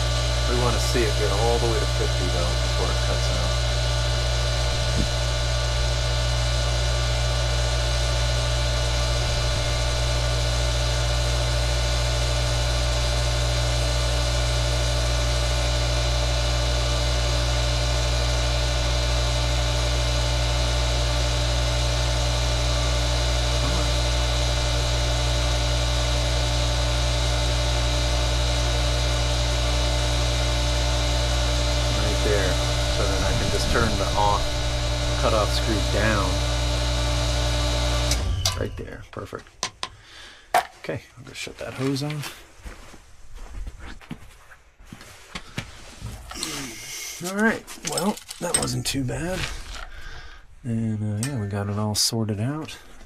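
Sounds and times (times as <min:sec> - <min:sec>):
pump motor humming: 0:00.0 - 0:39.0.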